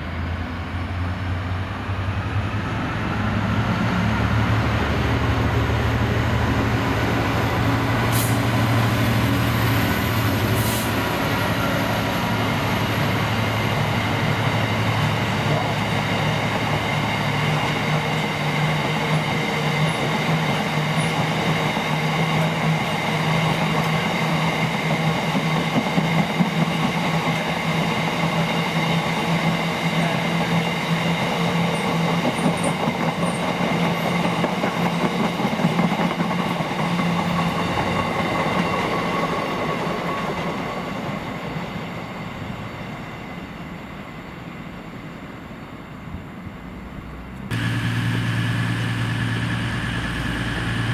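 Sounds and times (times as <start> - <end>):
diesel train engine running: 47.1 - 50.9.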